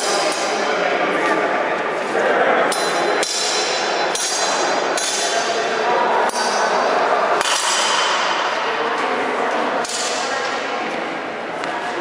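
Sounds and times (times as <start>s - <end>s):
swords clashing: 2.7s - 8.5s, 9.8s - 10.3s.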